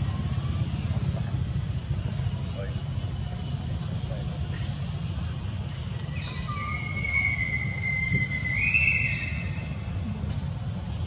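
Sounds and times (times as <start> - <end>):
low steady rumble: 0.0 - 11.0
baby monkey squealing: 6.1 - 9.8.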